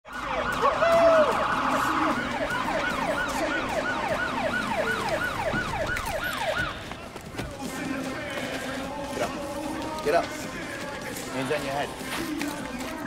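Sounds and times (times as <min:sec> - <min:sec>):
police siren wailing: 0:00.1 - 0:07.2.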